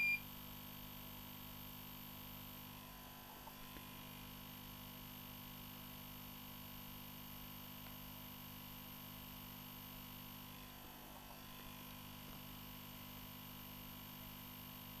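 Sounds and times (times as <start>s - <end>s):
high electronic beep: 0.0s - 0.2s.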